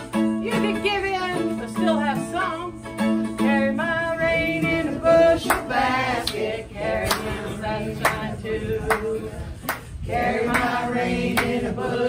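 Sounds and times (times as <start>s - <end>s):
women singing together: 3.4s - 12.0s.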